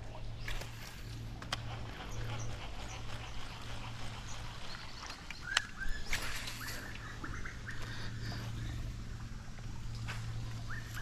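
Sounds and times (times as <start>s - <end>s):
steady low hum: 0.0s - 11.0s
bird chirps: 4.1s - 8.9s.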